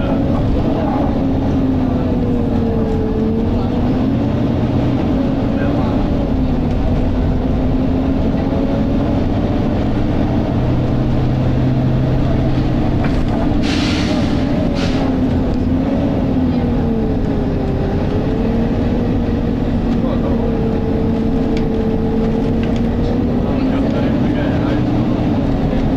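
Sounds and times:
bus diesel engine: 0.0s - 25.9s
short air hiss: 13.6s - 15.0s.

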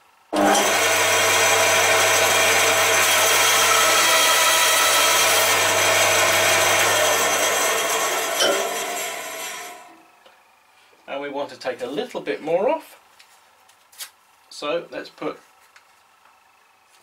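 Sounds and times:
band saw motor hum: 0.3s - 10.2s
saw blade ripping wood: 0.4s - 10.0s.

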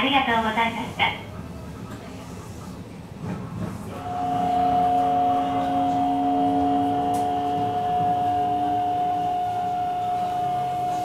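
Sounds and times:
train running rumble: 0.0s - 11.0s
train inverter whine: 3.0s - 11.0s.

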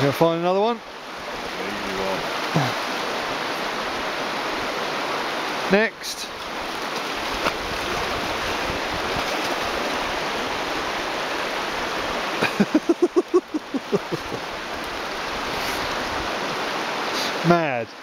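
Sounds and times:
shallow stream running: 0.0s - 18.0s
dog pawing at stones in water: 6.8s - 8.1s.

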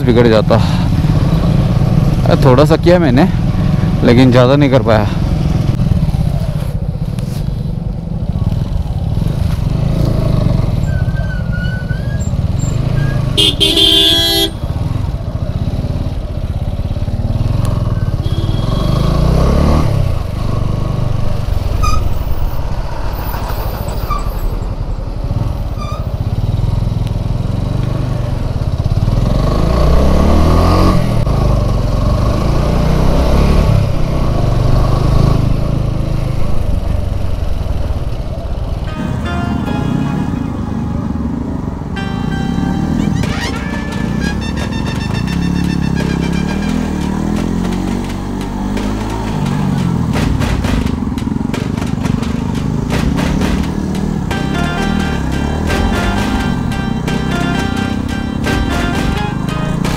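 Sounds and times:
vehicle horn: 13.4s - 14.7s, 18.2s - 19.3s, 38.8s - 41.1s, 41.9s - 47.2s, 54.3s - 59.9s
motorcycle engine running: 39.6s - 59.9s.

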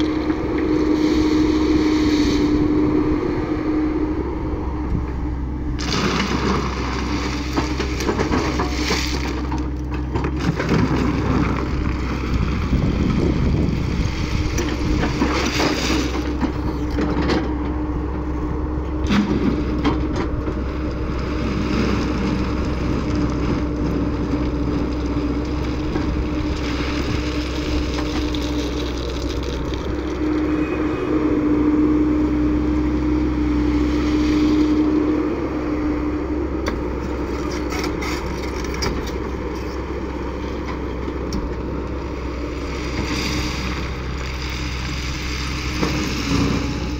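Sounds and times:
excavator engine whining: 0.0s - 46.9s
bucket digging through stone: 5.8s - 11.6s, 24.4s - 30.6s.

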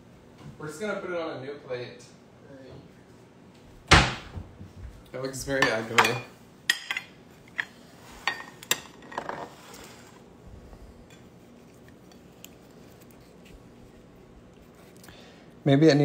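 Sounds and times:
ceramic plates clinking on countertop: 5.5s - 9.5s.

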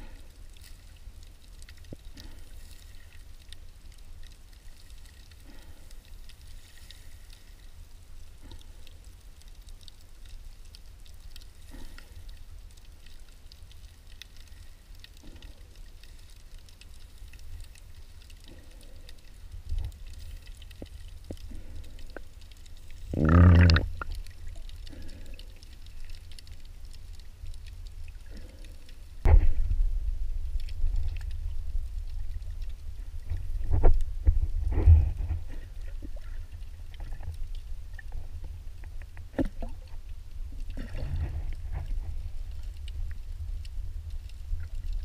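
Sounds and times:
faint ticks: 0.0s - 29.3s
underwater sloshing and gurgling: 0.0s - 45.0s
low rumble: 29.2s - 45.0s.

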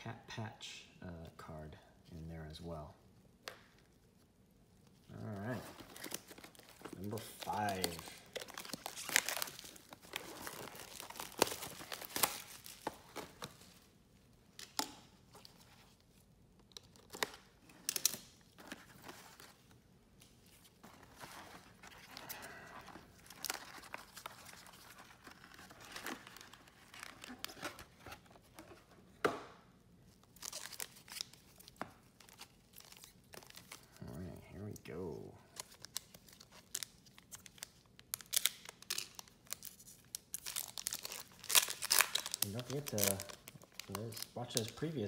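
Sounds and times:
cellophane wrap tearing and crinkling: 5.1s - 13.8s, 21.6s - 28.1s, 30.2s - 33.9s, 35.5s - 45.0s.

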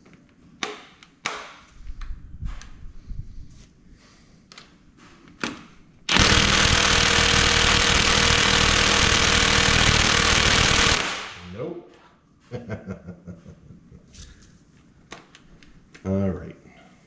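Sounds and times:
impact wrench hammering: 6.1s - 11.5s.

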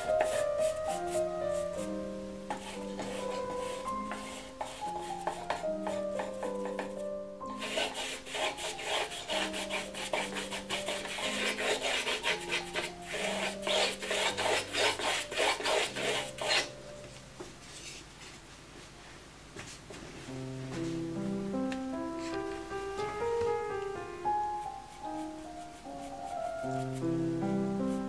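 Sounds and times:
paintbrush scrubbing on plaster: 0.0s - 1.9s, 2.5s - 6.9s, 7.5s - 16.7s
background music: 0.0s - 17.4s, 20.3s - 28.0s.

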